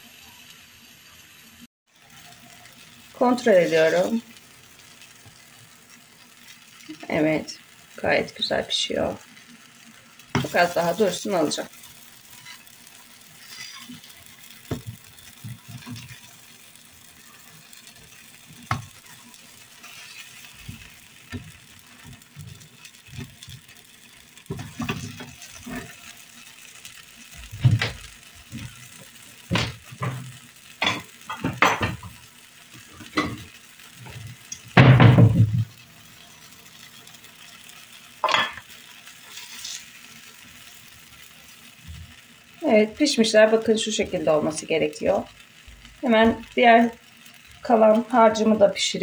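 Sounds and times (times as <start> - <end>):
pancakes sizzling in a pan: 0.0 - 49.0
spatula knocking and scraping pan: 10.3 - 11.0, 13.4 - 16.3, 18.6 - 19.1, 24.5 - 26.0, 29.5 - 32.1.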